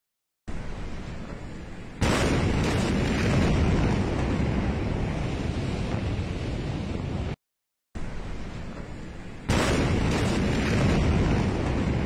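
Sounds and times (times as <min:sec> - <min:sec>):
roaring wind noise on microphone: 0:00.5 - 0:07.4.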